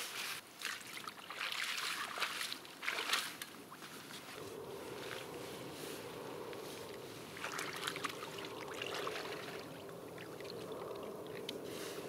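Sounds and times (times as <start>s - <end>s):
water splashing and trickling: 0.5s - 4.4s, 6.8s - 12.0s.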